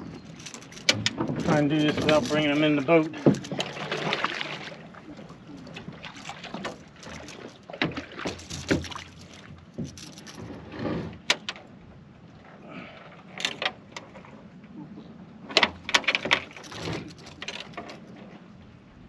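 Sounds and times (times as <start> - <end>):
fish splashing against boat: 0.0 - 11.3.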